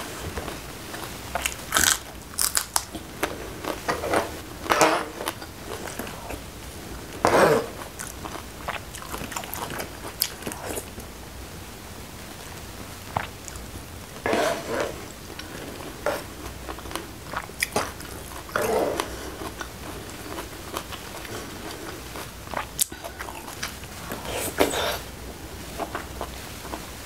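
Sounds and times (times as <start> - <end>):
wet chewing: 7.8 - 11.0, 15.4 - 25.0
metal spoon scraping tray: 14.3 - 15.0.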